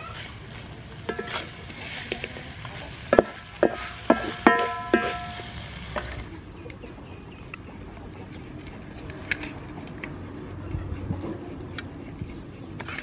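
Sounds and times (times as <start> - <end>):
light sizzle: 0.0 - 6.4
spatula knocking metal wok: 1.0 - 2.3, 3.0 - 5.5.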